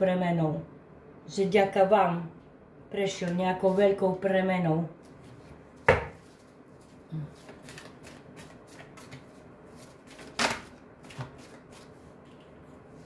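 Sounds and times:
cards shuffling: 0:06.2 - 0:12.1.

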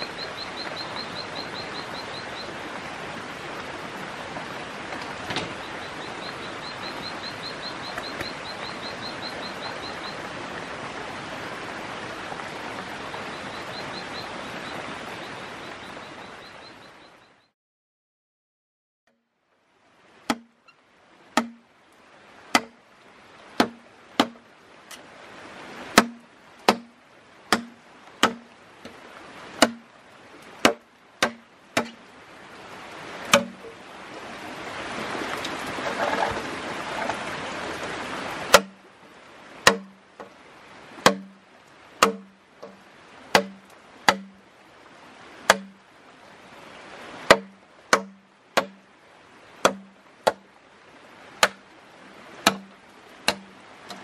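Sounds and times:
knife chopping bamboo: 0:20.3 - 0:20.5, 0:21.4 - 0:21.6, 0:22.5 - 0:22.7, 0:23.6 - 0:24.4, 0:26.0 - 0:26.9, 0:27.5 - 0:28.4, 0:29.6 - 0:29.8, 0:30.6 - 0:32.0, 0:33.3 - 0:33.5, 0:38.5 - 0:38.7, 0:39.6 - 0:39.9, 0:41.0 - 0:41.3, 0:42.0 - 0:44.3, 0:45.5 - 0:45.7, 0:47.3 - 0:48.8, 0:49.6 - 0:50.4, 0:52.4 - 0:52.7, 0:53.3 - 0:53.5.

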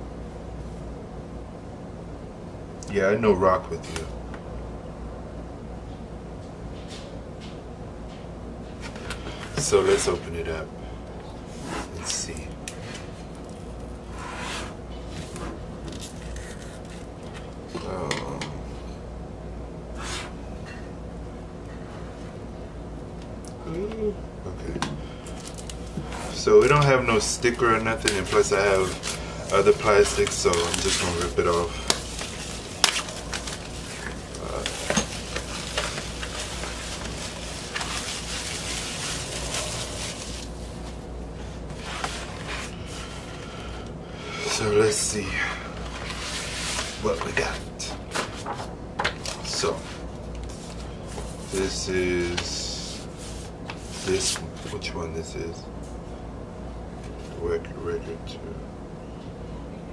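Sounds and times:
plastic wrap crinkling: 0:25.3 - 0:41.0.

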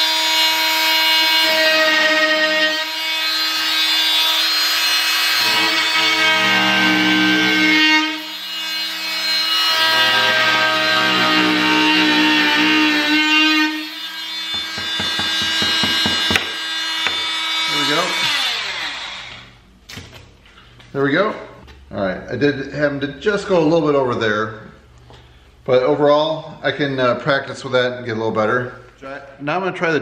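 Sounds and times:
oscillating tool cutting drywall: 0:00.0 - 0:19.5.

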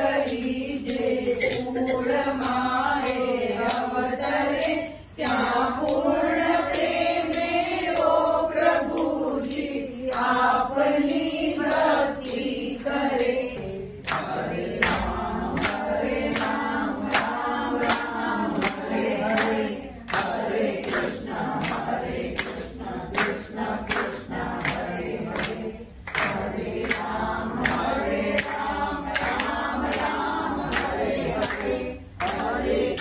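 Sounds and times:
group singing devotional song: 0:00.0 - 0:33.0
ringing metallic beat: 0:00.0 - 0:33.0
hand claps: 0:13.5 - 0:33.0.

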